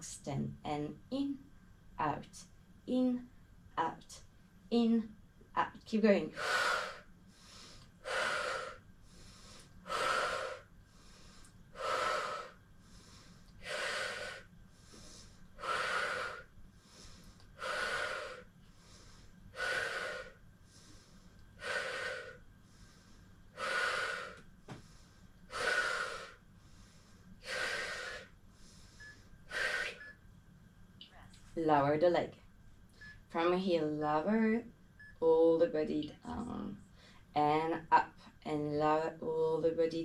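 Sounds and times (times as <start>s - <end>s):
woman breathing hard: 6.3s - 30.2s.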